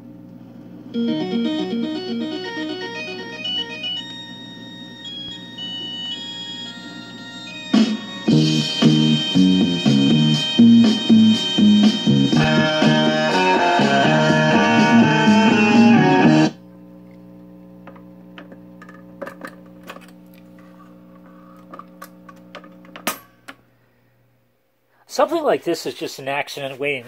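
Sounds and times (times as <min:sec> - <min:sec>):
record player low hum: 0:00.0 - 0:24.9
guitar music from record player: 0:01.0 - 0:16.6.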